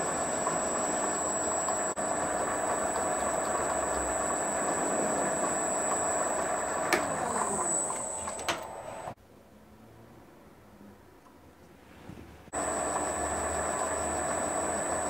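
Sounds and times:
metal lathe whining: 0.0 - 9.2, 12.6 - 15.0.

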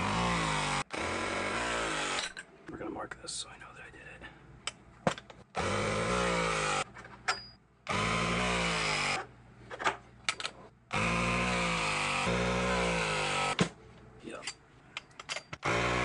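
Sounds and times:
press tool motor running: 0.0 - 2.4, 5.6 - 6.8, 7.9 - 9.2, 10.9 - 13.6, 15.6 - 16.0.

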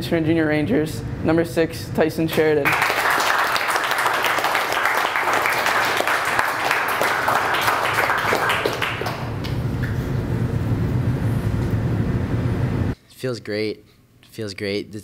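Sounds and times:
low steady hum: 0.0 - 14.3
people clapping: 2.3 - 10.0.

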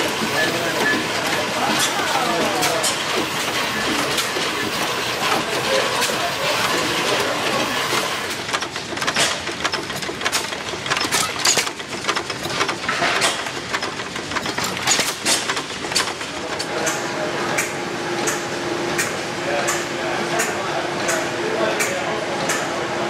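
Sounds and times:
stationary engines clattering: 0.0 - 22.9
gas engine driving water pump: 0.0 - 23.0
sharp irregular clicks and knocks: 7.9 - 19.8, 20.4 - 22.7.

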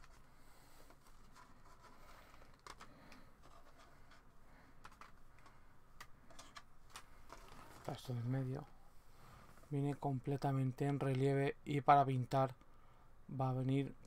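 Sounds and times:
light clicks of small plastic parts: 0.8 - 7.9
plastic bag rustling: 6.3 - 8.7.

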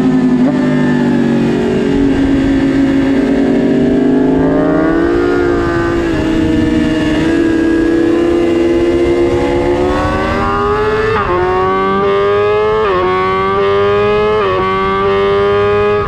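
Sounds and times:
motorcycle engine at high revs: 0.0 - 16.0
wind rush on microphone: 1.4 - 13.0.

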